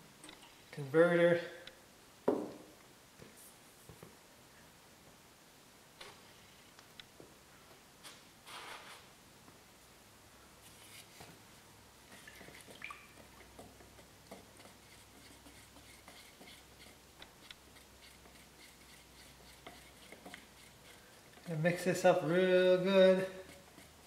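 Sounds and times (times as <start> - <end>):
stir stick scraping in metal can: 12.1 - 24.0.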